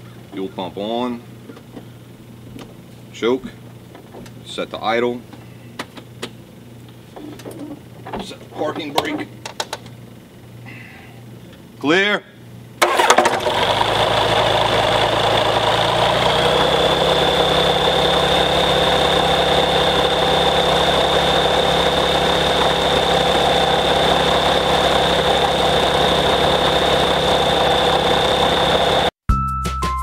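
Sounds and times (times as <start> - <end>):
aircraft engine starting and idling: 12.8 - 29.2.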